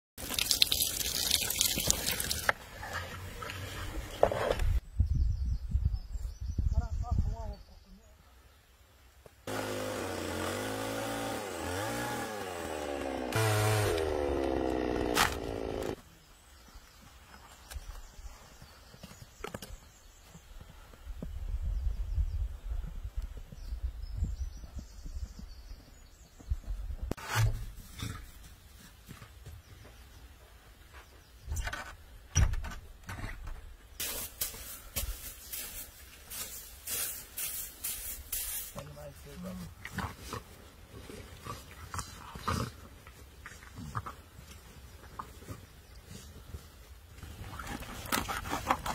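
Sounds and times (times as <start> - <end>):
chainsaw cutting branch: 9.5 - 16.0
broom sweeping snow: 34.0 - 39.3.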